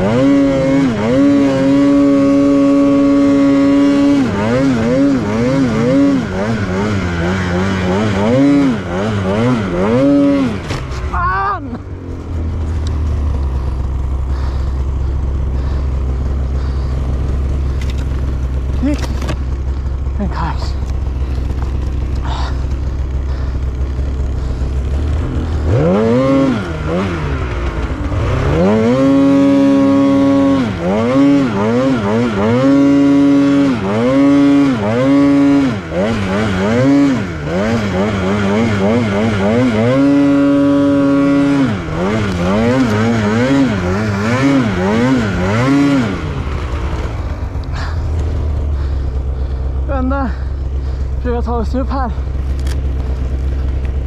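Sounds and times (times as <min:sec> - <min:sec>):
snowmobile engine idling and revving: 0:00.0 - 0:54.0.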